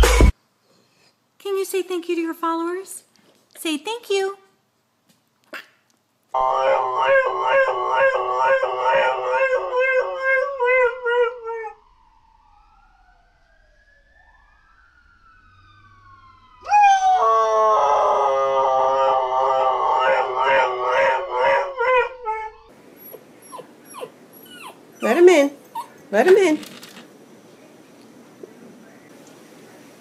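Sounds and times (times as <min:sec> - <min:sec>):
dog howling: 0:06.4 - 0:12.1, 0:16.6 - 0:26.0
faint siren wailing: 0:06.4 - 0:25.5.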